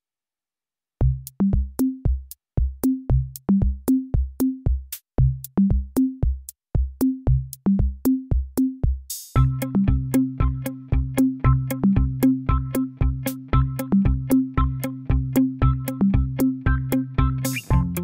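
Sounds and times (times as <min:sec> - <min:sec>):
electronic drum-machine beat: 0:01.0 - 0:18.0.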